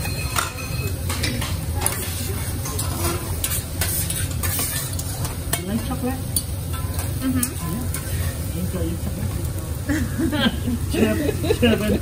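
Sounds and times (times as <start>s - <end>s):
metal spatulas scraping griddle: 0.0s - 5.9s, 6.7s - 8.5s
food sizzling: 0.0s - 12.0s.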